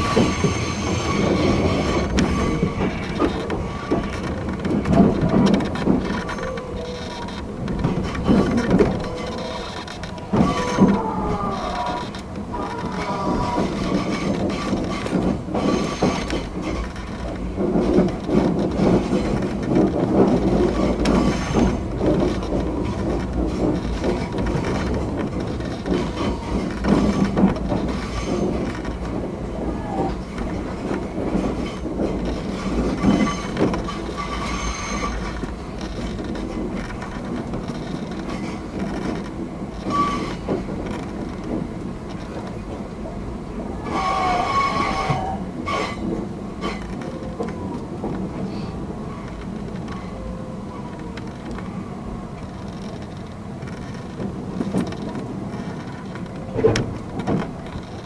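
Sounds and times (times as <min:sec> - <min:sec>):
train wheels rumbling on rails: 0:00.0 - 0:58.0
faint wheel squeals: 0:43.8 - 0:46.0.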